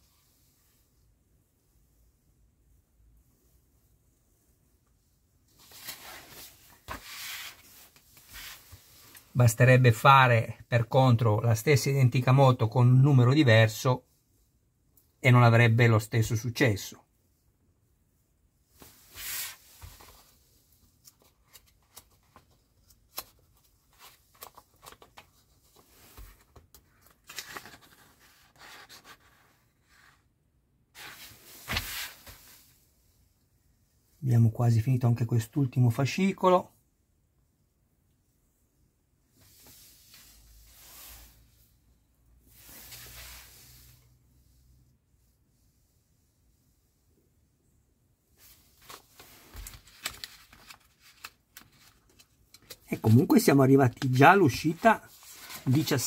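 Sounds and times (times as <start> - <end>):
magazine pages turning: 5.6 - 8.7, 21.0 - 29.6, 31.0 - 32.4, 48.4 - 56.0.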